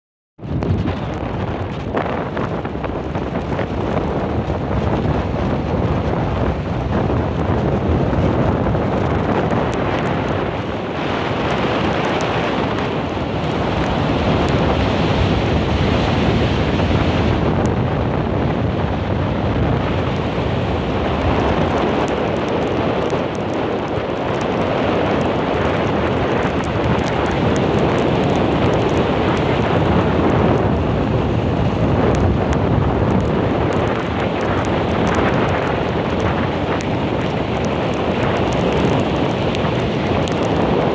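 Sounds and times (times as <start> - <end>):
wind buffeting microphone: 0.4 - 40.9
surf breaking on beach: 0.5 - 40.9.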